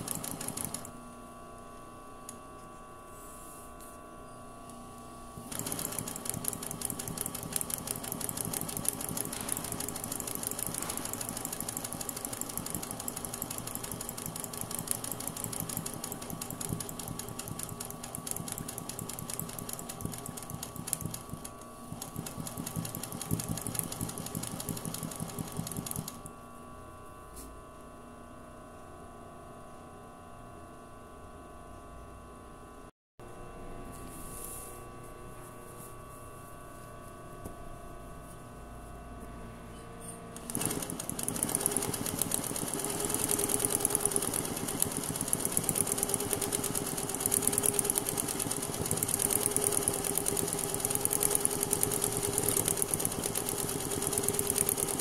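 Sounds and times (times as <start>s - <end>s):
sewing machine stitching: 0.0s - 0.9s, 5.4s - 26.3s, 40.4s - 55.0s.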